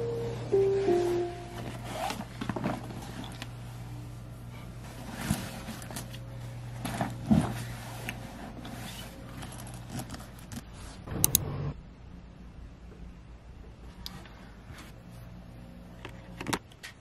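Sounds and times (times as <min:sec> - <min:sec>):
low hum: 0:00.0 - 0:08.1, 0:11.0 - 0:16.3
fabric rustling: 0:01.0 - 0:11.0.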